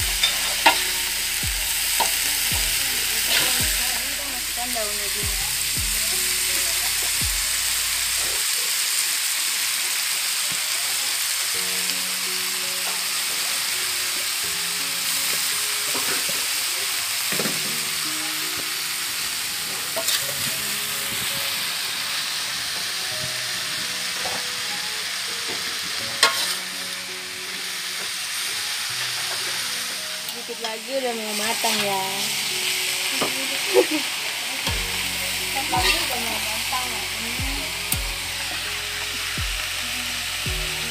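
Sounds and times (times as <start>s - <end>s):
greens sizzling in oil: 0.0s - 40.9s
metal spatula stirring in wok: 0.1s - 2.5s, 26.2s - 26.7s.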